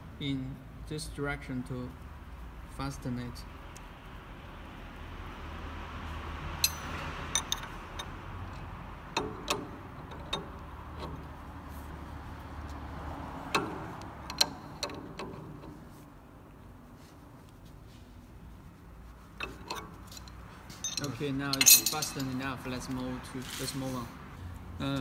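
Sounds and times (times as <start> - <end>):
wrench clicking on metal nut: 6.6 - 11.3, 13.5 - 15.8.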